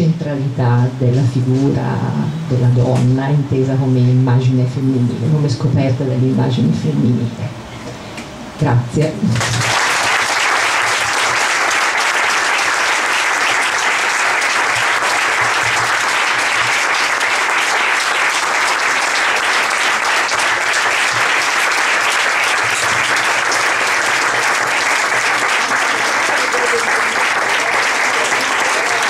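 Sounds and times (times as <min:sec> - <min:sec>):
audience applauding: 0:09.4 - 0:29.0.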